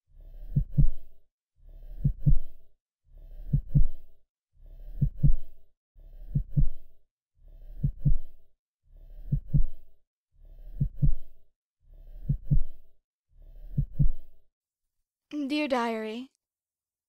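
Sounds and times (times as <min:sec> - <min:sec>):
heartbeat double thump: 0:13.7 - 0:14.2.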